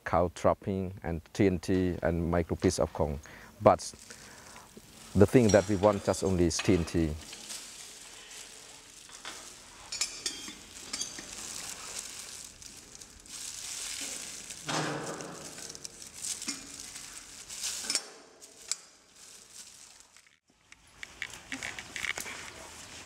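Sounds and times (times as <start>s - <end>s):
plastic gloves crinkling: 3.2s - 23.0s
metal cups clicking and scraping: 4.0s - 18.9s.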